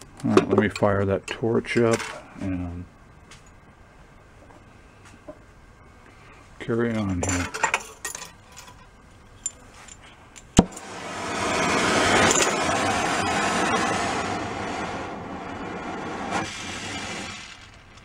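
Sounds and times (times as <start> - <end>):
gas torch lighting pop: 10.5 - 18.0
gas torch flame hissing: 10.6 - 18.0.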